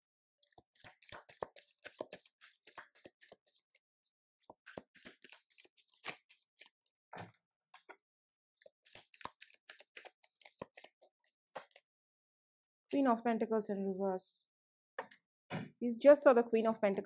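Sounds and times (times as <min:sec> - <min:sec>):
cards shuffling: 0:00.5 - 0:03.7, 0:04.4 - 0:06.7, 0:08.8 - 0:11.0.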